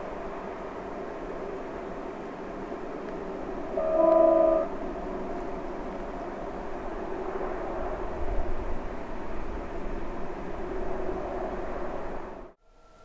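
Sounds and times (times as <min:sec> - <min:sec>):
train rumbling: 0:00.0 - 0:12.6
locomotive horn blast: 0:03.6 - 0:05.0.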